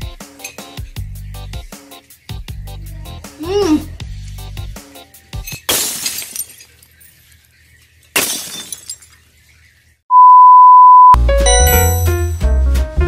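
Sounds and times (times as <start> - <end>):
music: 0.0 - 5.5, 11.2 - 13.0
glass shattering: 5.4 - 7.4, 8.1 - 9.2
high steady beep: 10.1 - 12.1.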